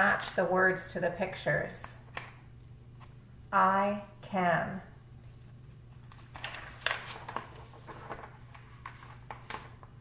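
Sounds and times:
low steady hum: 0:00.0 - 0:10.0
soft handling clicks and crinkles: 0:05.2 - 0:09.9
book pages flipping: 0:05.2 - 0:10.0.

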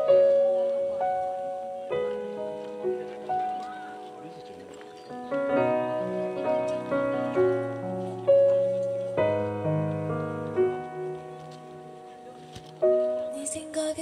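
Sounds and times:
acoustic pop song through speakers: 0:13.3 - 0:14.0.

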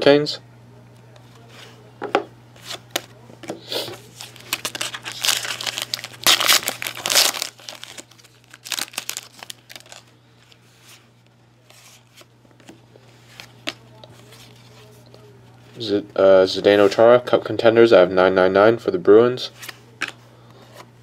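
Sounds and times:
foil pack crinkling and tearing: 0:04.1 - 0:10.1.

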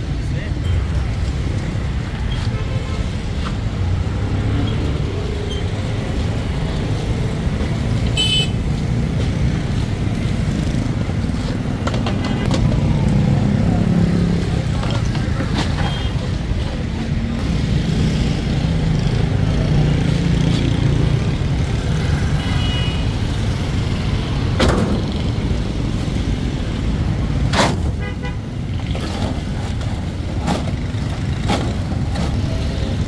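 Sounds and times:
street traffic: 0:00.0 - 0:33.0
vehicle horn tooting: 0:08.2 - 0:08.6.

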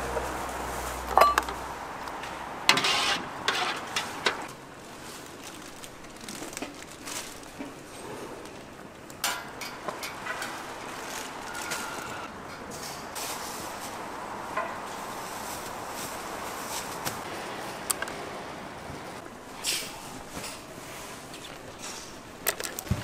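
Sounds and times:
dishes and utensils clattering: 0:01.1 - 0:01.6.

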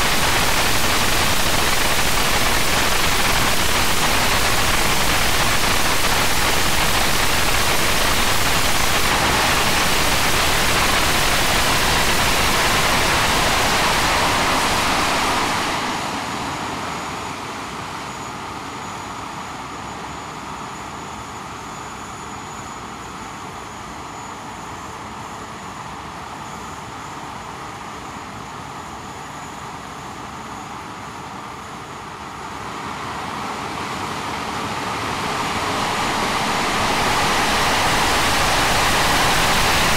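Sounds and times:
jet engine roaring: 0:00.0 - 0:18.2, 0:32.6 - 0:39.9
jet engine high whine: 0:00.0 - 0:39.9.

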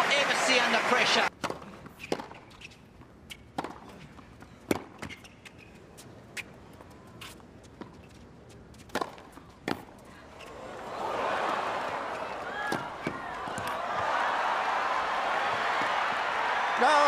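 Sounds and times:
faint crowd murmur: 0:09.2 - 0:14.8.

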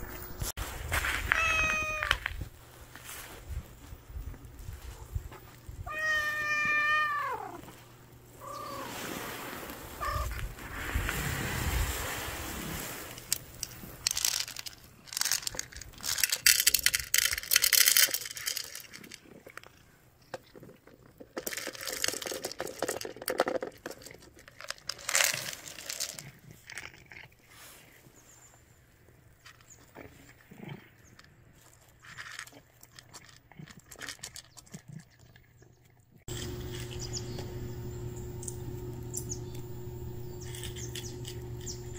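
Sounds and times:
cat meowing: 0:01.3 - 0:02.2, 0:05.8 - 0:07.6
dry food rattling into bowl: 0:13.1 - 0:19.7, 0:20.3 - 0:26.9, 0:36.3 - 0:37.4
cat crunching kibble: 0:13.2 - 0:28.0, 0:29.4 - 0:41.9.

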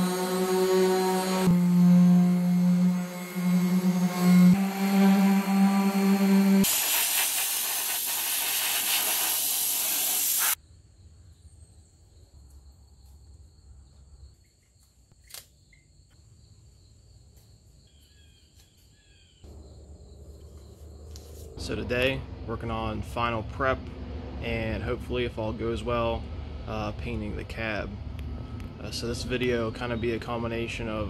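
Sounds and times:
orbital sander on steel: 0:00.0 - 0:10.6.

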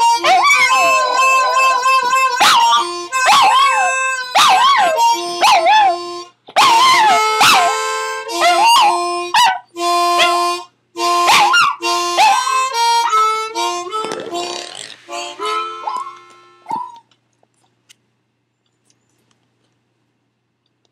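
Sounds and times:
harmonica chords: 0:00.0 - 0:17.0
dog howling: 0:00.2 - 0:06.0.

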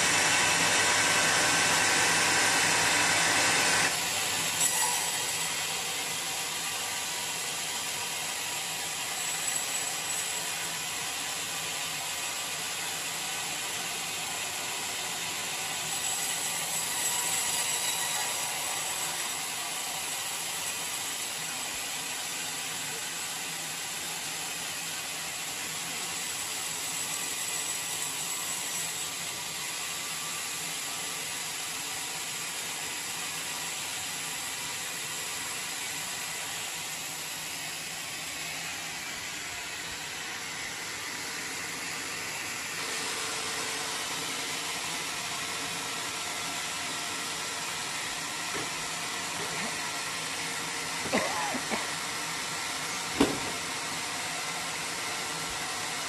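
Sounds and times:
band saw cutting a log: 0:00.0 - 0:56.0.

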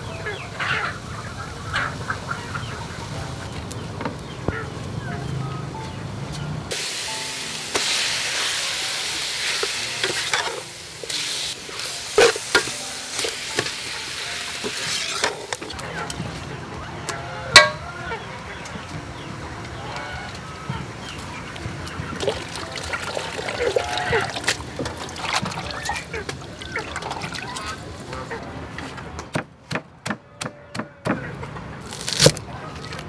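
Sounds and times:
meat sizzling in a pot: 0:06.7 - 0:15.7
metal ladle knocking a pot: 0:17.6 - 0:17.8.

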